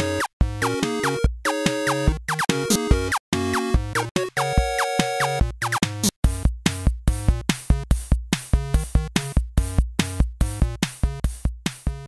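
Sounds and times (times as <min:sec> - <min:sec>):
music with steady beat: 0:00.0 - 0:12.0.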